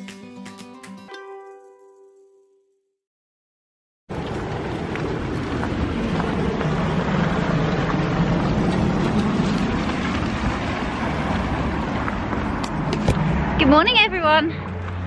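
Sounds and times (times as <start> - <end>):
street noise rumble and hiss: 4.1 - 15.0.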